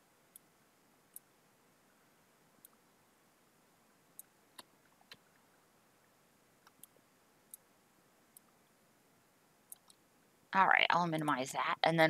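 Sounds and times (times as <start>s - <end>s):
computer mouse clicks: 1.1s - 1.3s, 2.6s - 2.8s, 6.6s - 7.7s, 9.7s - 10.0s.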